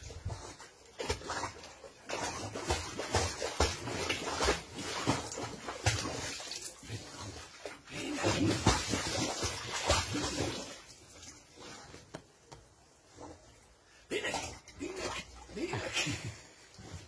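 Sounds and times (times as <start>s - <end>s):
dog splashing in pool water: 0.0s - 12.4s.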